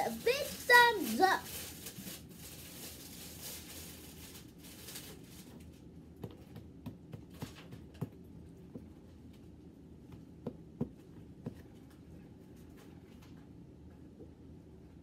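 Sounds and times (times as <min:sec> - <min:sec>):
faint room hiss: 0:00.0 - 0:06.3.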